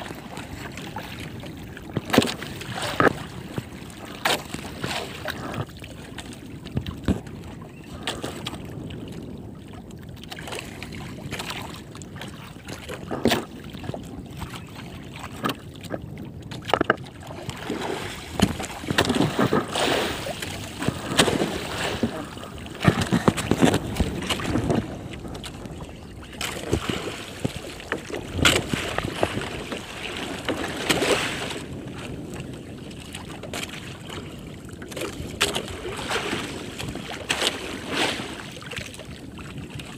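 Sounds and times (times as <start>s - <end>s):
water splashing against boat hull: 0.0s - 39.9s
knocks on boat: 1.9s - 4.6s, 6.7s - 7.3s, 16.6s - 17.0s, 18.2s - 19.8s, 20.8s - 25.6s, 26.4s - 31.2s.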